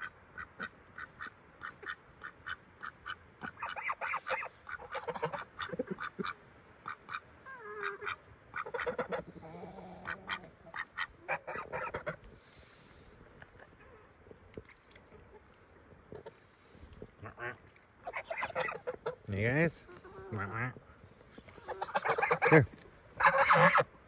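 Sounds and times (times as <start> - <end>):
ducks quacking: 0.0 - 12.3, 17.2 - 20.9, 21.5 - 24.0.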